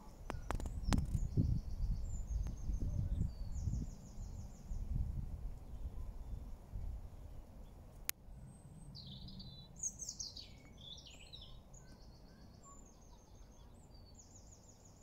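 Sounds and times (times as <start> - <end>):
faint birdsong: 0.0 - 15.0.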